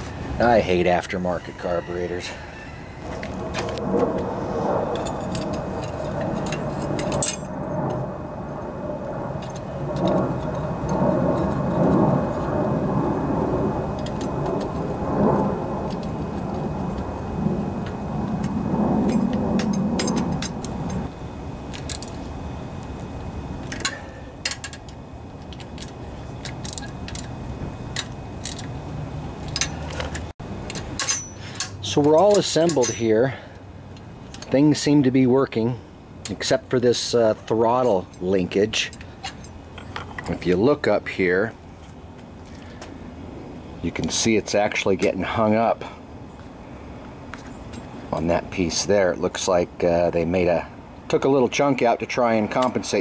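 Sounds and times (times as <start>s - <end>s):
metal parts and tools clinking: 5.0s - 7.5s, 23.7s - 28.7s, 29.4s - 33.2s.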